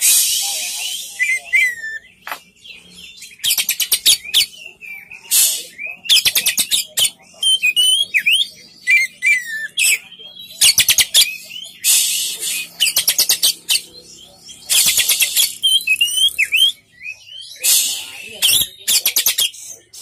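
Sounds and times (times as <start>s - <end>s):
bird harsh hissing burst: 0.0s - 1.2s, 5.3s - 5.8s, 11.8s - 12.8s, 17.6s - 18.4s
bird whistling song: 0.0s - 20.0s.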